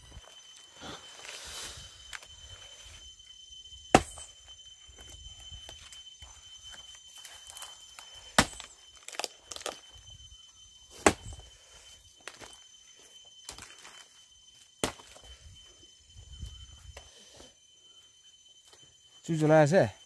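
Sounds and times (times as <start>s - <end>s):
blade chopping wooden log: 3.9s - 4.3s, 8.4s - 9.3s, 11.0s - 11.4s.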